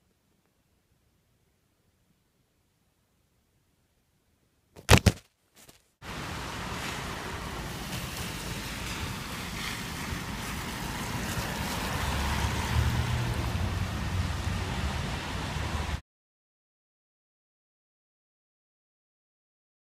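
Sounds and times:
car passing on wet road: 6.0s - 16.0s.

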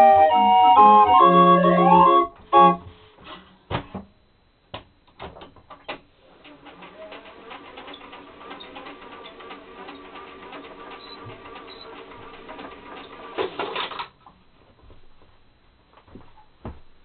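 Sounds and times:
small pipe organ playing a march: 0.0s - 2.9s
faint fast rattle: 6.2s - 14.0s.

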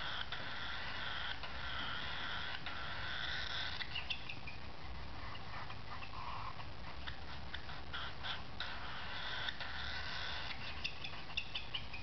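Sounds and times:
bird chick begging buzz: 7.0s - 12.0s.

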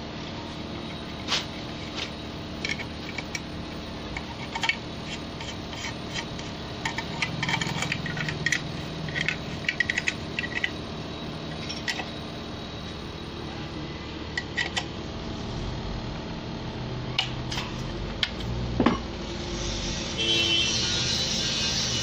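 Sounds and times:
low hum: 0.2s - 22.0s
spanner clinking on metal: 4.1s - 10.8s.

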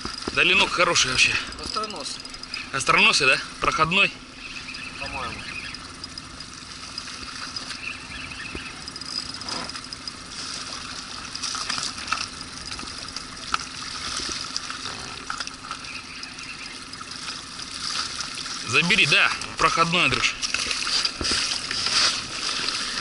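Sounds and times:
fish splashing at surface: 16.7s - 19.6s.

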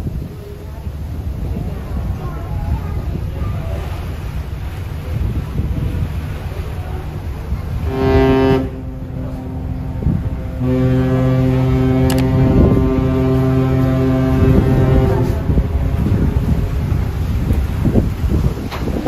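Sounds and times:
low rumble: 0.8s - 19.0s
ship's horn blasts: 5.8s - 18.0s.

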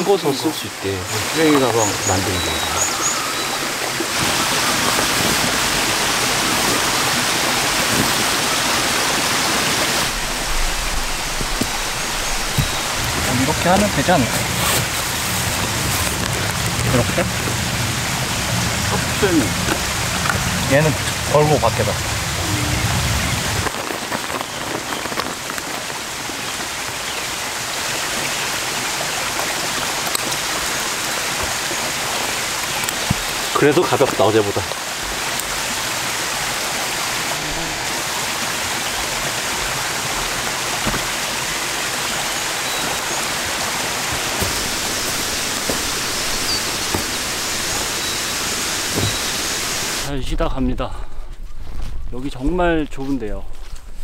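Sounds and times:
stream rushing over rocks: 0.0s - 50.1s.

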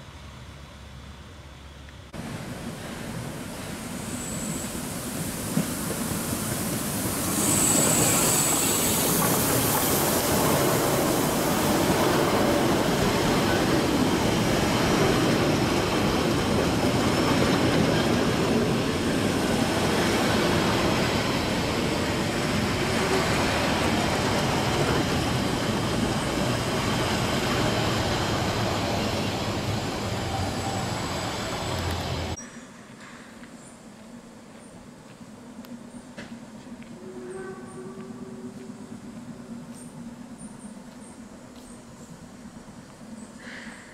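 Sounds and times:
train coaches rolling on rails: 1.5s - 33.0s
steam locomotive hiss: 2.2s - 32.5s.

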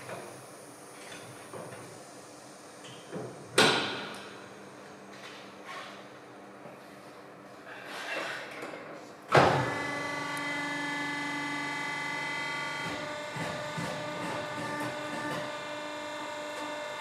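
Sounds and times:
tyre changer motor whining: 9.5s - 17.0s.

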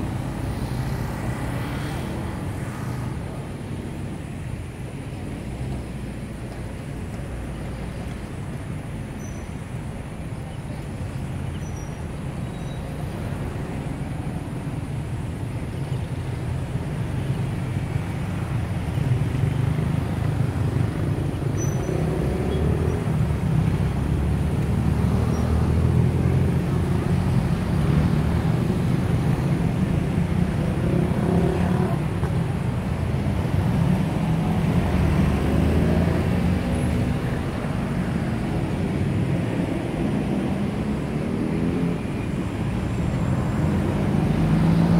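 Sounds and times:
engine and traffic rumble: 0.0s - 44.9s.

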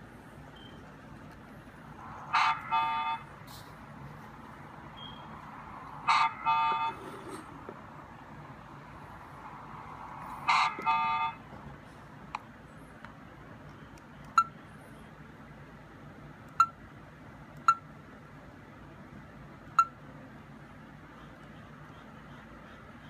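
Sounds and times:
electronic beeps: 0.5s - 0.8s, 5.0s - 5.4s.

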